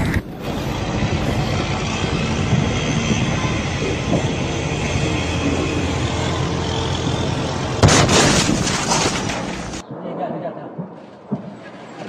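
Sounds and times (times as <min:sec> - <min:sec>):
sudden loud bang: 0:07.8 - 0:09.6.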